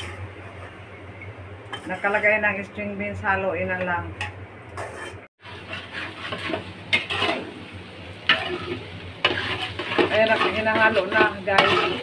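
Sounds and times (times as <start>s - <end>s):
spatula scraping wok: 0.0s - 1.0s, 1.7s - 2.5s, 4.7s - 12.0s
utensil clanking on pan: 8.3s - 12.0s.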